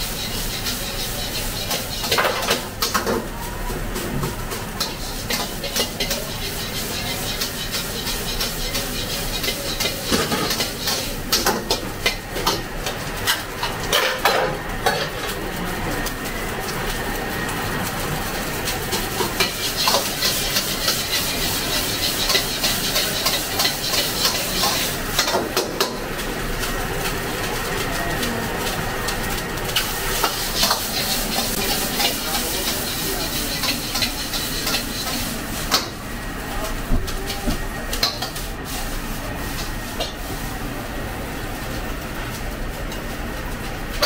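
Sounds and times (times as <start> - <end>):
metal ladle scraping a wok: 0.0 - 2.9, 4.8 - 11.4, 19.0 - 25.3, 29.7 - 35.3
rice sizzling in a wok: 0.0 - 44.0.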